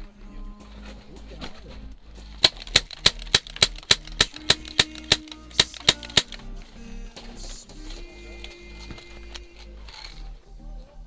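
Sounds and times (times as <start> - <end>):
airsoft pistol shots: 2.4 - 6.4.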